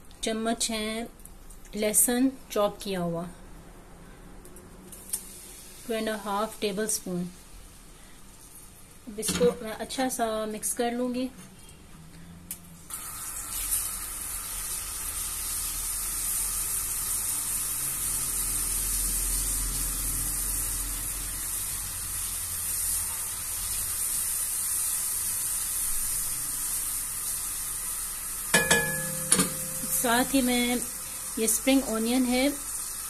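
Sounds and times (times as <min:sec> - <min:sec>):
garlic sizzling in hot oil: 0:04.9 - 0:08.7, 0:12.9 - 0:33.0
spatula stirring in wok: 0:28.6 - 0:31.8.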